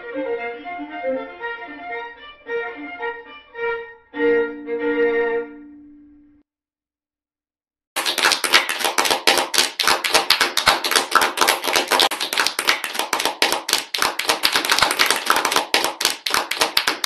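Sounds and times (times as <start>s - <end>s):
crowd clapping: 8.0s - 17.0s.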